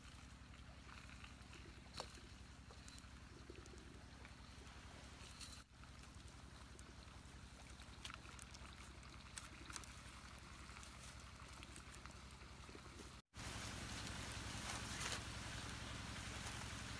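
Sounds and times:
low hum: 0.0s - 16.9s
faint steady hiss: 13.4s - 16.9s.

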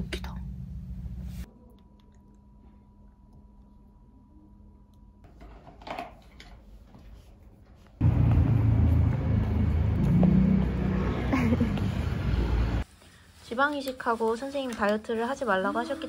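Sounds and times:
street noise buffeting microphone: 8.0s - 12.9s.

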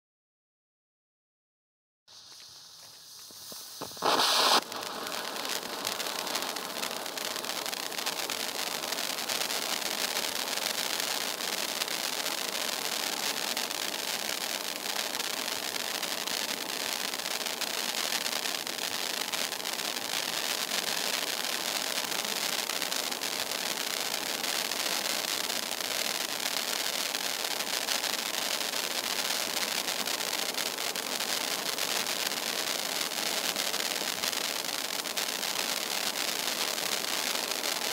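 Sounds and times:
pyrotechnic fountain hissing: 2.1s - 11.5s
sparks flaring up: 2.1s - 37.9s.

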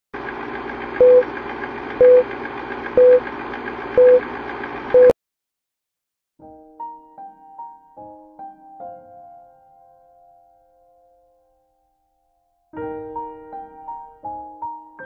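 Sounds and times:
film projector whirring: 0.2s - 5.1s
short beeps: 1.0s - 1.2s, 2.0s - 2.2s, 3.0s - 3.2s, 4.0s - 4.2s, 5.0s - 5.2s.

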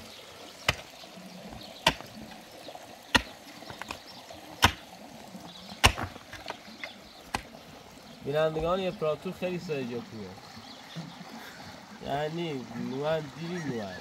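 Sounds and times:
pickaxe striking stony ground: 0.7s - 0.9s, 1.8s - 2.2s, 3.1s - 4.0s, 4.6s - 4.9s, 5.8s - 6.6s.

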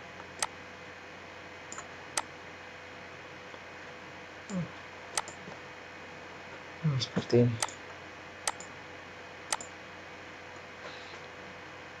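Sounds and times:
computer mouse clicks: 5.2s - 5.4s, 7.6s - 7.8s, 8.5s - 8.7s, 9.5s - 9.7s.

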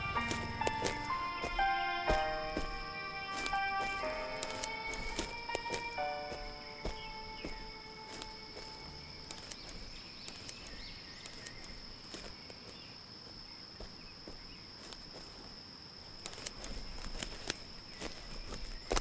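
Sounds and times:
high-pitched insect drone: 0.0s - 12.9s
footsteps crunching on dirt: 0.0s - 19.0s.

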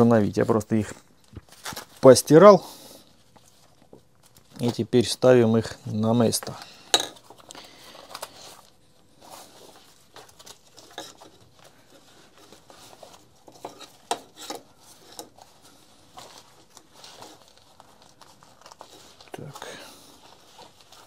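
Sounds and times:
fabric straps rustling: 7.2s - 21.0s.

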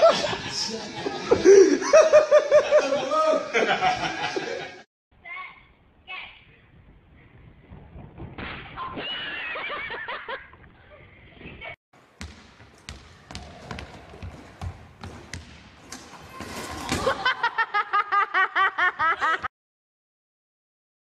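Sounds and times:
loud laughter: 16.8s - 19.5s.

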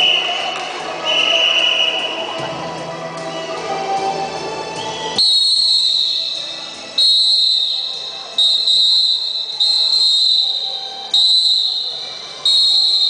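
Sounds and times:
music: 0.0s - 13.0s
shrill whistle blasts: 1.0s - 2.3s, 4.8s - 13.0s.

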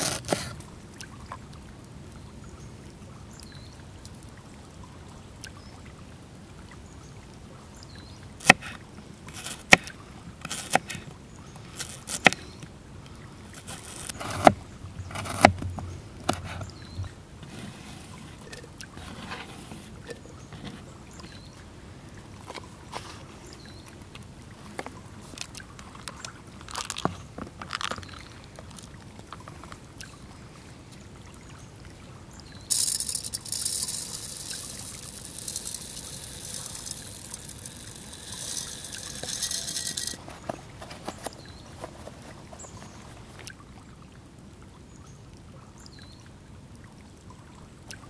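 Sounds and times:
grains poured into clay pot: 9.3s - 9.8s, 11.8s - 12.3s, 13.6s - 14.4s, 32.7s - 40.4s.

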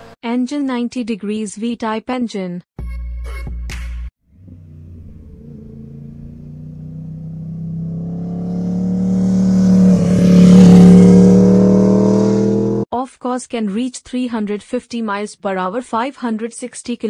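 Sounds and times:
vehicle engine running: 4.3s - 12.8s.

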